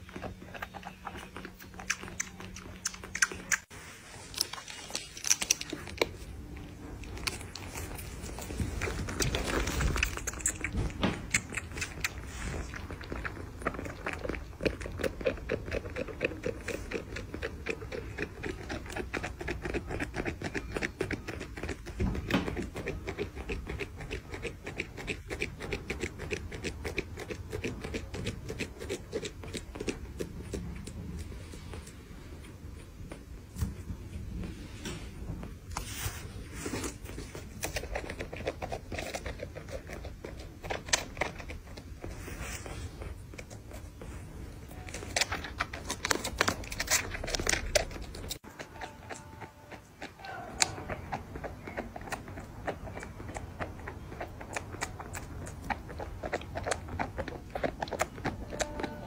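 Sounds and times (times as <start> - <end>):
kitten sucking clicks: 8.9 - 31.2.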